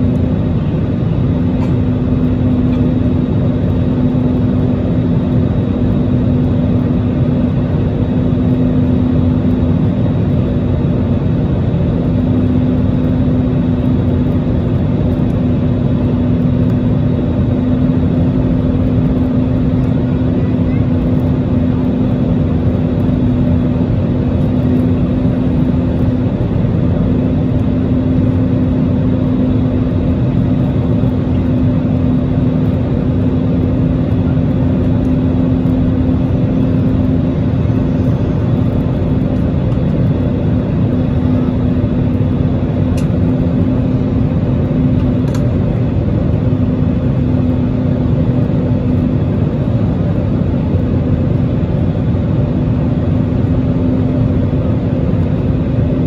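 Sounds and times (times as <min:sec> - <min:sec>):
jet engines and airflow rushing: 0:00.0 - 0:56.0
steady low hum: 0:00.0 - 0:56.0.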